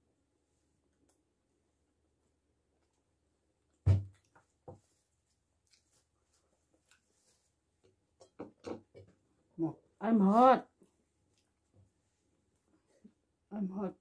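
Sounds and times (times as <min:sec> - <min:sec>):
wet chewing sounds: 0:05.6 - 0:07.1.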